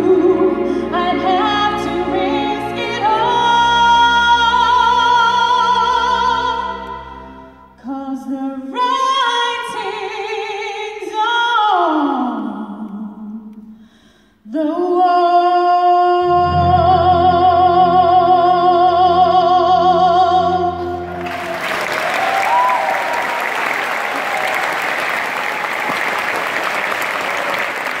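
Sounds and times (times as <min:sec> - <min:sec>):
deep low orchestral notes: 0:16.1 - 0:27.9
audience applause: 0:21.1 - 0:28.0.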